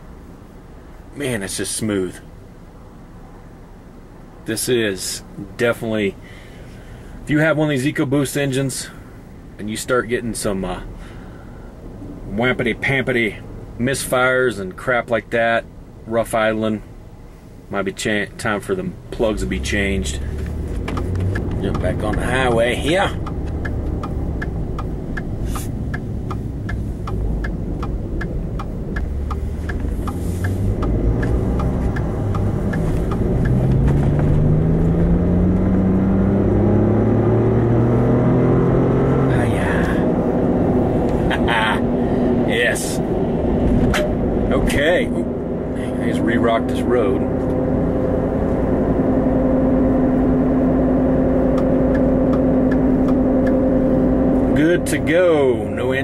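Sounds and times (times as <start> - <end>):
turn signal ticking: 18.3 - 56.0
truck engine accelerating: 18.4 - 56.0.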